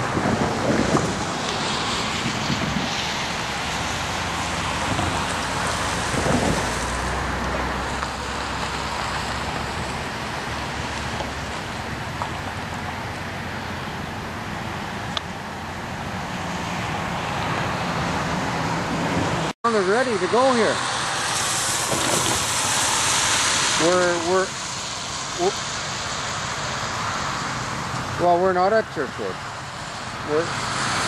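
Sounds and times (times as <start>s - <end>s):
rain hissing: 0.0s - 18.8s, 19.4s - 31.0s
wind rumble on microphone: 0.0s - 19.5s.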